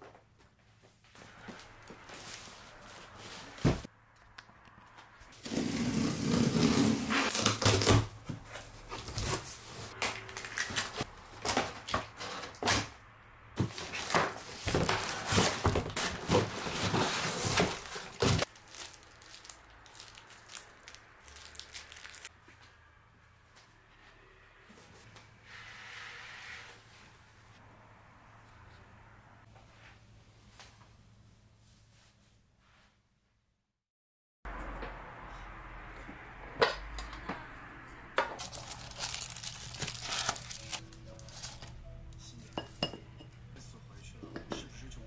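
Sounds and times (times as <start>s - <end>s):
cardboard box rustling and scraping: 5.4s - 10.0s, 13.6s - 18.5s.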